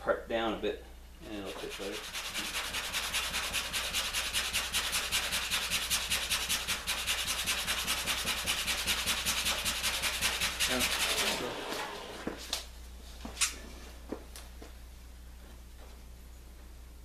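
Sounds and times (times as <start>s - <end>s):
hand file rasping on wood: 1.4s - 11.8s.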